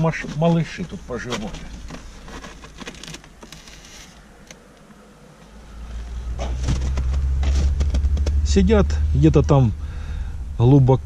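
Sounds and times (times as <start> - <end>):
foam plastic clicks and scrapes: 0.0 - 4.2
low rumble: 5.6 - 11.0.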